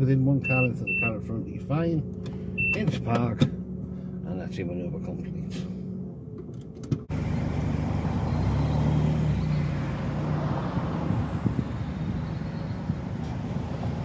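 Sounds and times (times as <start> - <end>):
car engine pulling away: 1.4 - 14.0
tyre and road noise: 1.7 - 14.0.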